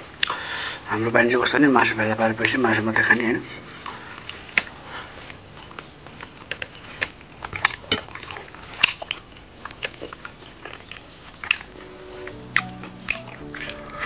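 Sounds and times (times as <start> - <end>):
man chewing and lip smacking: 3.7 - 14.0.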